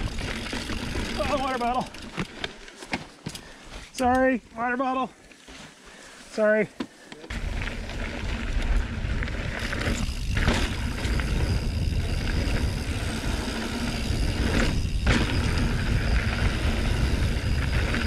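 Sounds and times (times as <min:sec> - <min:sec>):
bike parts rattling: 0:00.0 - 0:03.6, 0:07.3 - 0:18.0
tyres on dirt: 0:00.0 - 0:18.0
wind rumbling on microphone: 0:07.3 - 0:18.0.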